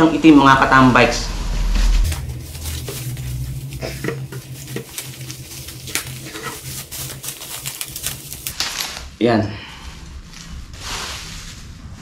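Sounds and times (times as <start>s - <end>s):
bubble wrap rustling: 2.0s - 9.2s, 9.8s - 12.0s.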